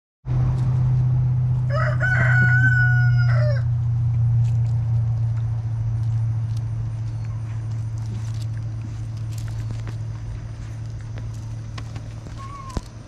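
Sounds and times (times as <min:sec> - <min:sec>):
steady low hum: 0:00.3 - 0:13.0
rooster crowing: 0:01.6 - 0:03.8.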